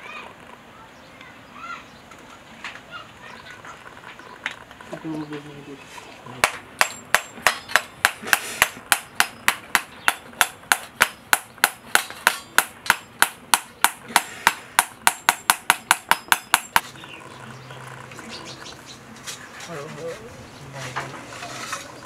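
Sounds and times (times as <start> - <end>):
knife knocking on coconut shell: 6.4 - 16.8.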